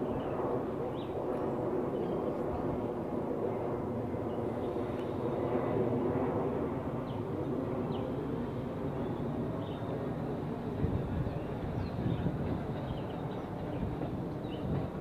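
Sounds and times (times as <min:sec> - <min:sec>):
subway train wheels rumbling: 0:10.6 - 0:15.0.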